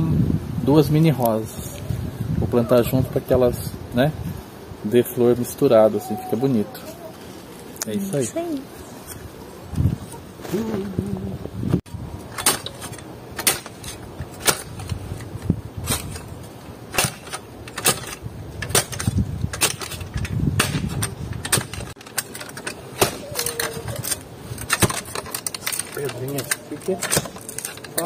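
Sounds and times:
hand tool chopping into dry ground: 0:22.9 - 0:23.6.

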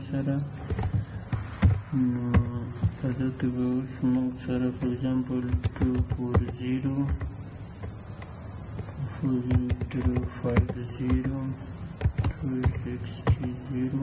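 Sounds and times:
man talking: 0:01.8 - 0:07.2, 0:09.0 - 0:11.7, 0:12.3 - 0:14.0
keyboard keystrokes clicking: 0:04.8 - 0:07.3, 0:09.5 - 0:11.4, 0:12.0 - 0:13.4.

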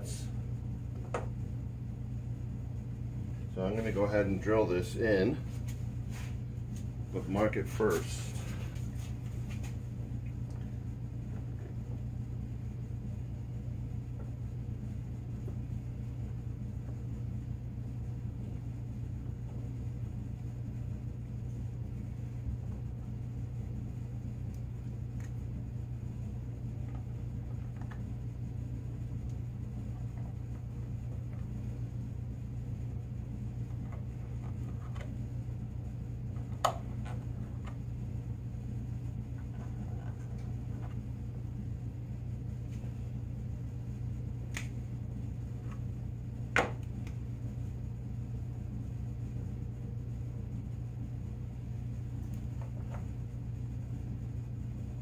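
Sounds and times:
low background hum: 0:00.0 - 0:55.0.

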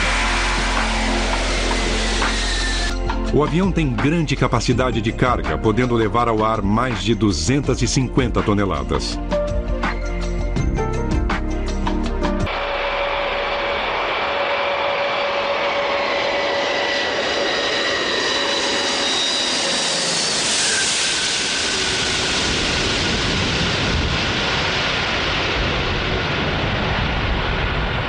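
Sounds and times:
jet aircraft hiss: 0:00.0 - 0:03.0, 0:12.5 - 0:27.8
jet engines whining: 0:00.0 - 0:03.8, 0:12.5 - 0:28.0
deep jet rumble: 0:00.0 - 0:28.0.

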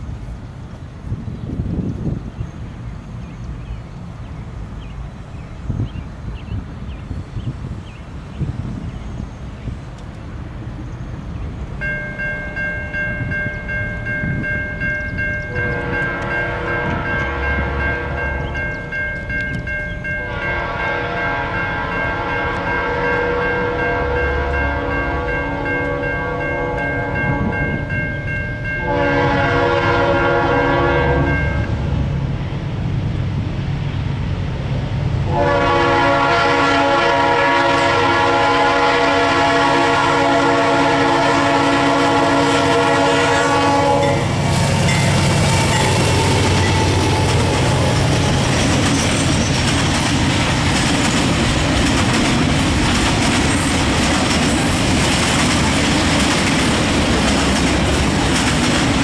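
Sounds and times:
locomotive air horn chord: 0:15.4 - 0:18.7, 0:20.2 - 0:27.9, 0:28.6 - 0:31.9, 0:35.3 - 0:47.3.

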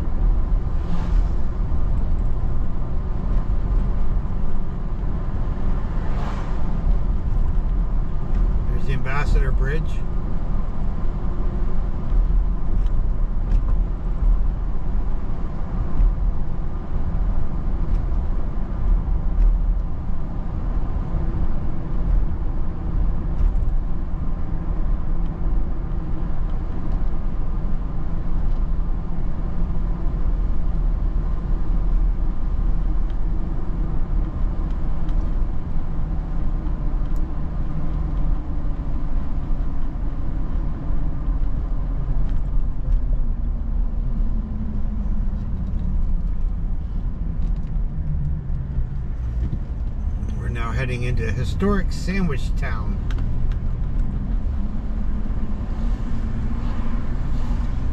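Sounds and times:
car engine and tyres rumbling: 0:00.0 - 0:57.9.

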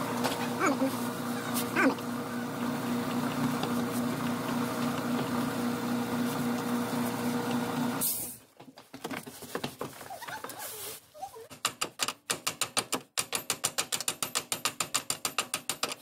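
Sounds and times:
machine hum: 0:00.0 - 0:08.0.

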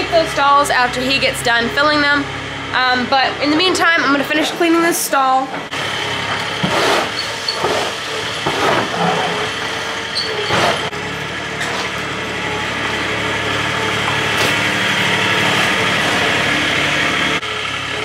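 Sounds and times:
engine hum: 0:00.0 - 0:18.0
shovel scraping concrete: 0:06.5 - 0:09.5.

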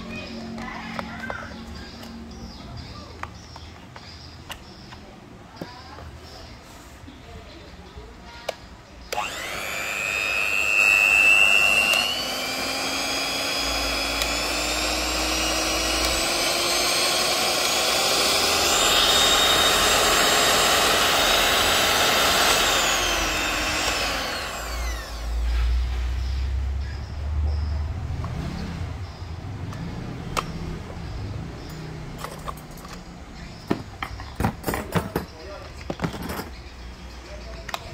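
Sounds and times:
hand mixer motor whining: 0:09.1 - 0:25.6.

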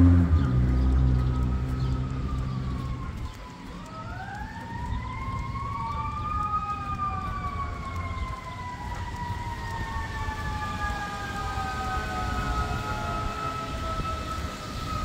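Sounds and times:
steady low rumble: 0:00.0 - 0:10.5
siren wailing: 0:00.0 - 0:15.0.

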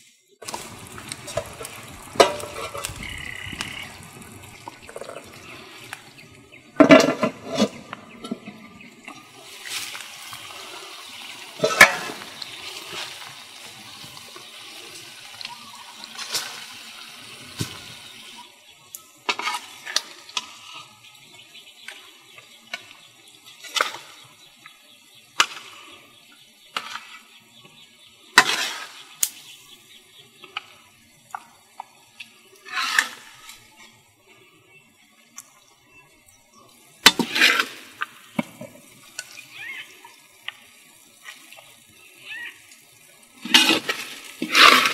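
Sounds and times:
simmering wok hissing: 0:00.0 - 0:44.9
metal spoon scraping a wok: 0:01.3 - 0:03.4, 0:32.6 - 0:33.5, 0:37.1 - 0:38.1, 0:43.4 - 0:44.9.

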